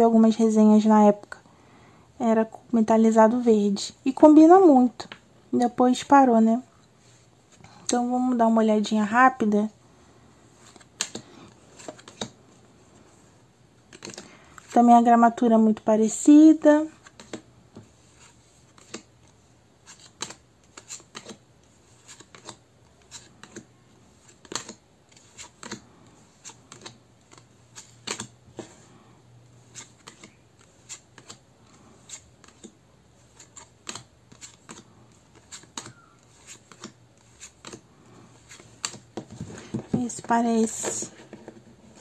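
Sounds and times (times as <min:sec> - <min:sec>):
cards clicking as set down: 0:10.7 - 0:11.2, 0:26.7 - 0:28.7, 0:33.4 - 0:37.8.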